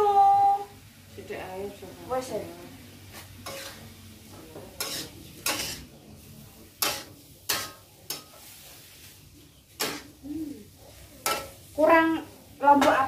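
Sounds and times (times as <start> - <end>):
low sizzling in pan: 0.0 - 13.0
metal spatula scraping a wok: 3.1 - 4.0, 4.8 - 6.0, 6.6 - 12.0.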